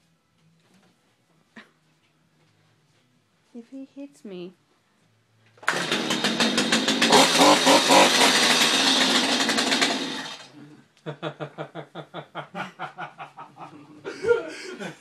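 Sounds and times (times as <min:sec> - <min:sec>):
chainsaw running: 0:05.6 - 0:10.6
rhythmic laughter: 0:11.1 - 0:15.0.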